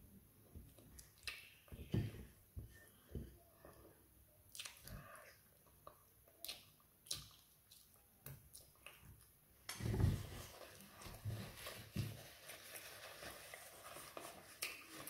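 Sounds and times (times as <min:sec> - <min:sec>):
wet chewing and finger licking: 0:04.5 - 0:05.0, 0:05.6 - 0:09.0.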